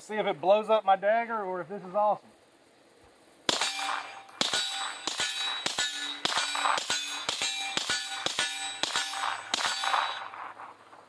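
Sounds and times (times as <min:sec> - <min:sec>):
steel targets clanging: 0:03.5 - 0:10.8
suppressed pistol shots: 0:03.5 - 0:10.8.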